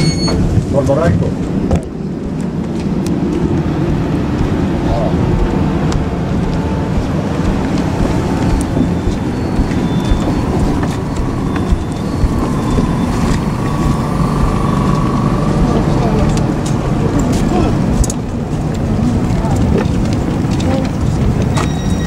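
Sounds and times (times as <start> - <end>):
train wheels rumbling on rail: 0.0 - 22.0
faint rising whine: 3.2 - 17.2.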